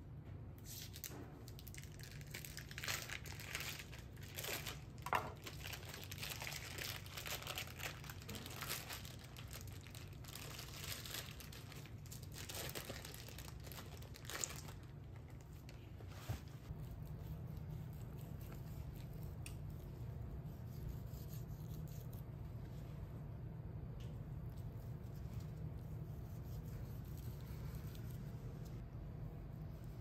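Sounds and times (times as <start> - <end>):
plastic packaging crinkling: 0.8 - 16.0
low hum: 13.1 - 30.0.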